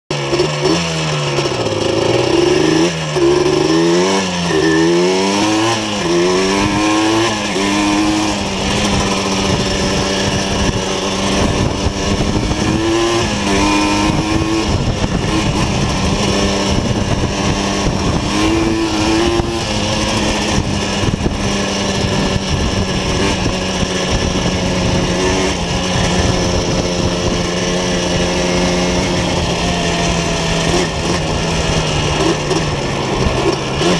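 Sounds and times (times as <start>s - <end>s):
quad engine revving: 0.1s - 33.9s.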